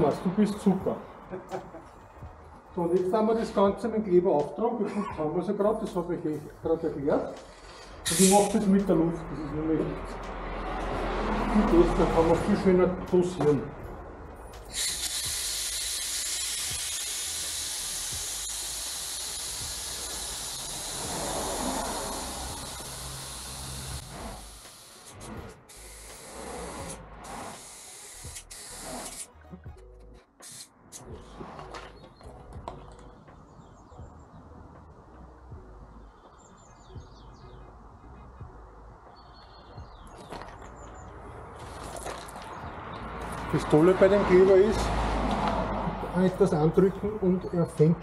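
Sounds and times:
compressed air hissing: 7.4s - 8.7s, 14.6s - 29.3s, 30.4s - 31.0s
small birds chirping: 35.9s - 41.4s.

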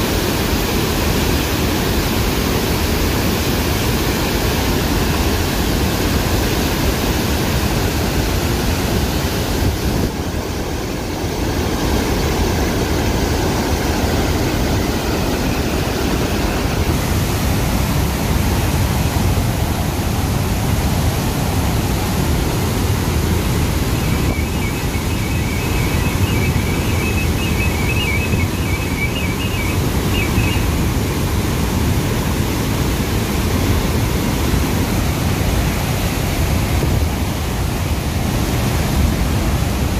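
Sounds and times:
water rushing through spillway: 0.0s - 39.9s.

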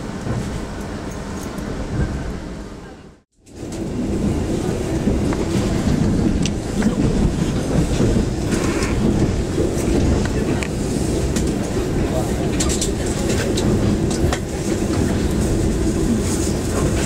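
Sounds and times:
train carriage rumble: 0.0s - 17.0s
wheels clicking over rail joints: 5.1s - 15.8s.

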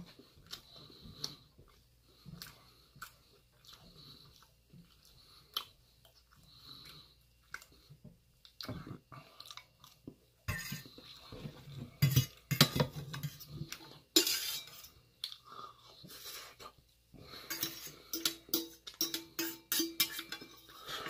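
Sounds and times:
metal fork scraping a pan: 10.5s - 10.9s, 12.0s - 13.6s, 14.2s - 15.0s, 17.4s - 21.0s.

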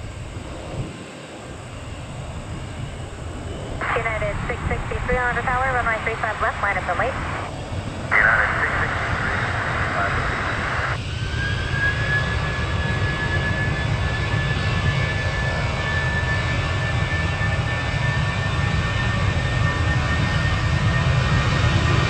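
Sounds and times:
jet engine whine: 0.0s - 22.0s
low engine rumble: 3.3s - 11.0s.

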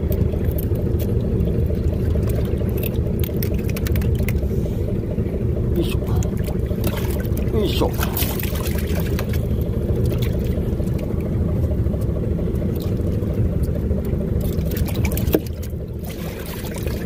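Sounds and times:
boat engine rumbling: 0.0s - 17.0s
water pouring from a hose: 14.4s - 17.0s.

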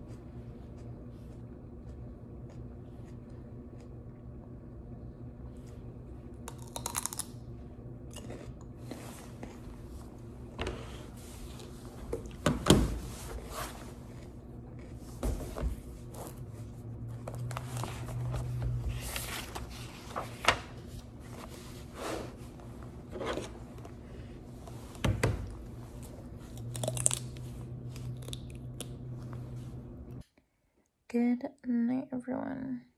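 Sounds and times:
crunchy chewing of vegetable: 0.0s - 4.4s, 5.0s - 10.2s, 26.0s - 29.6s
low steady hum: 0.0s - 32.9s.

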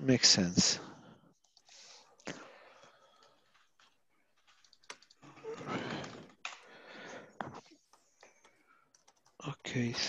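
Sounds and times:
keyboard typing and clicks: 1.4s - 5.3s, 7.6s - 10.0s.

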